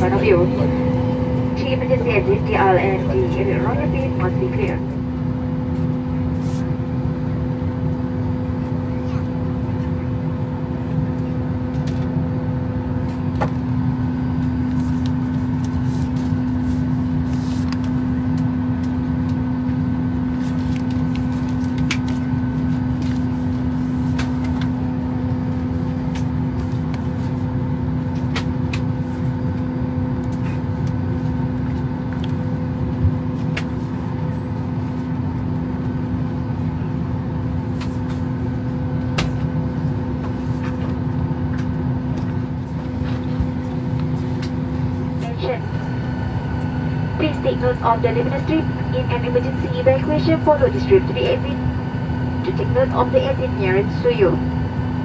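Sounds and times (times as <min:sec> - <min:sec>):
airliner cabin drone: 0:00.0 - 0:55.0.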